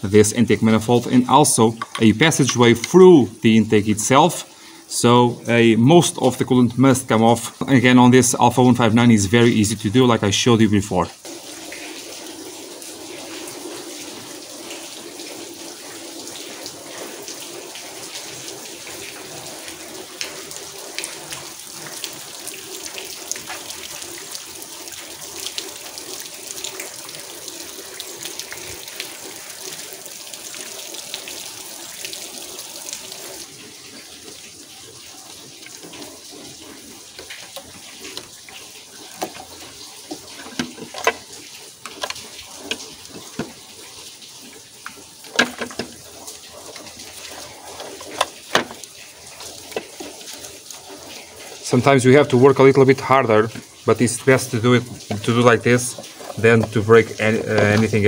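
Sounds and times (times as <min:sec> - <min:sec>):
steady rain falling: 0:00.0 - 0:58.0
clicks and knocks on engine hoses: 0:40.1 - 0:41.3, 0:45.3 - 0:46.0.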